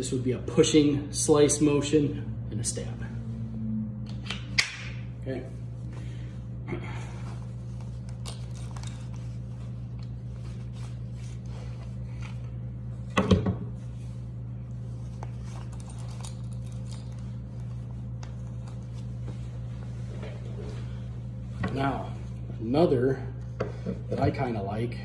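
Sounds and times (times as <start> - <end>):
steady low hum: 0.0 - 25.0
clothing rustle: 7.1 - 13.0.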